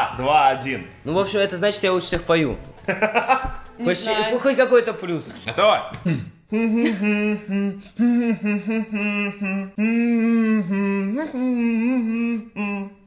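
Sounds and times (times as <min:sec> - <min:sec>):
person humming: 0:06.0 - 0:13.0.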